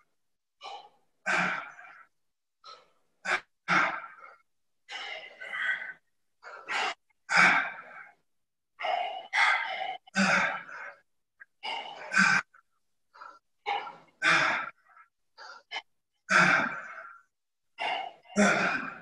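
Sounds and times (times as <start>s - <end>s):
man breathing hard: 2.6s - 8.2s.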